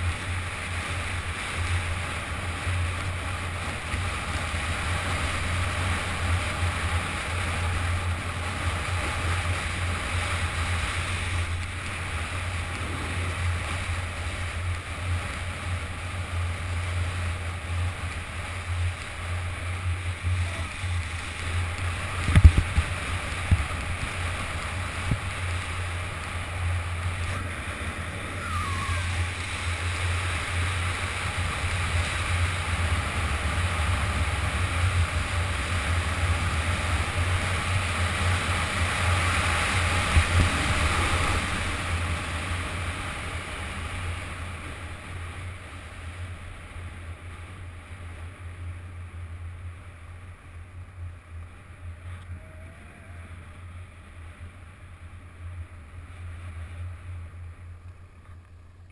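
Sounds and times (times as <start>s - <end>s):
skis scraping over snow: 0.0s - 52.4s
wind rumble on microphone: 0.0s - 58.9s.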